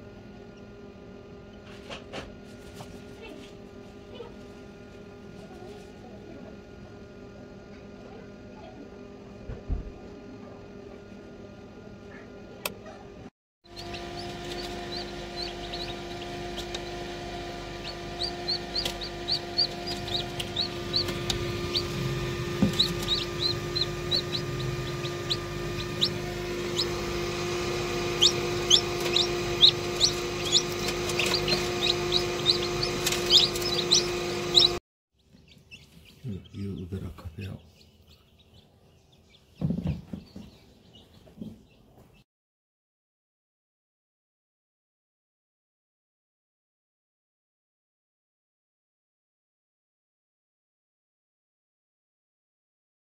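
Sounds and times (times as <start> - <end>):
steady machine hum: 0.0 - 34.8
chicks peeping: 13.7 - 42.2.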